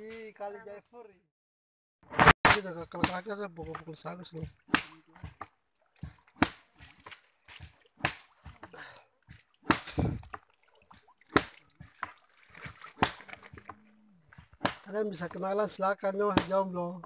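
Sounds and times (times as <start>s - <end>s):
wet slaps of beaten pulp: 2.5s - 10.5s, 11.3s - 15.4s, 16.3s - 16.6s
water squelches and splashes: 2.7s - 16.9s.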